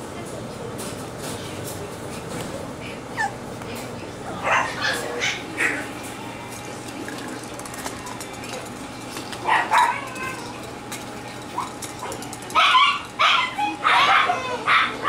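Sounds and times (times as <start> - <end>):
puppies yipping: 3.2 - 3.4, 4.4 - 6.0, 9.4 - 10.6, 11.5 - 15.0.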